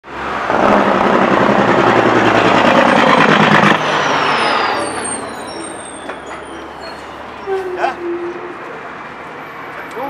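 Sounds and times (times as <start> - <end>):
large vehicle engine running: 0.1 - 7.4.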